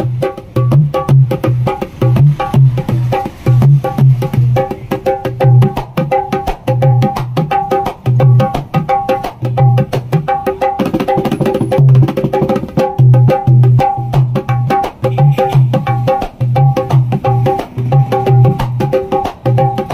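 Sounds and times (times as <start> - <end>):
hand drum fast rhythm: 0.0 - 19.9.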